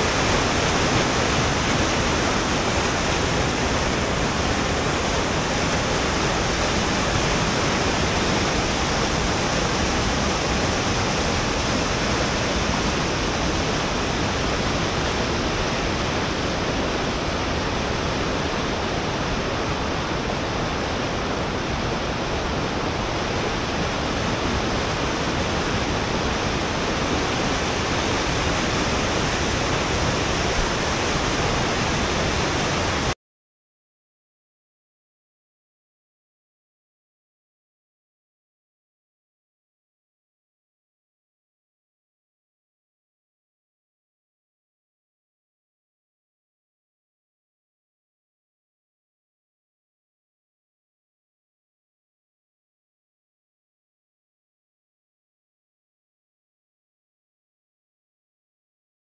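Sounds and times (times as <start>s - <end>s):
river rapids rushing: 0.0s - 33.2s.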